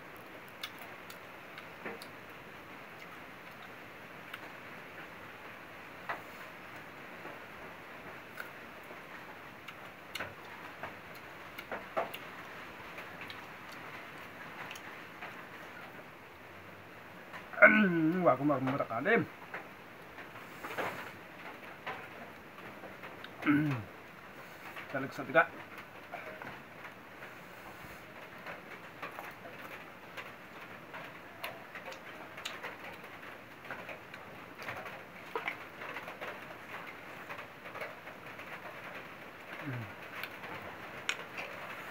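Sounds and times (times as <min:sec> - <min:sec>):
steady low hiss: 0:00.0 - 0:41.9
chewing: 0:00.2 - 0:02.2, 0:03.0 - 0:04.5, 0:08.3 - 0:08.6, 0:13.0 - 0:15.9, 0:27.2 - 0:30.3, 0:33.7 - 0:41.9
person chewing: 0:00.5 - 0:02.2, 0:34.7 - 0:35.6, 0:39.5 - 0:41.9.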